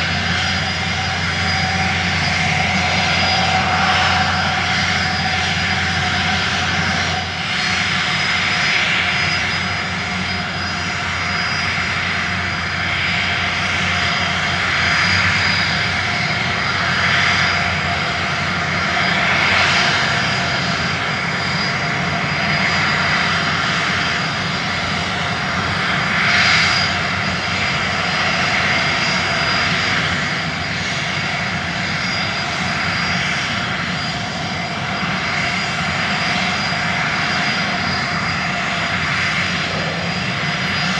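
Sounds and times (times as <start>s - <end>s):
wind noise: 0.0s - 40.9s.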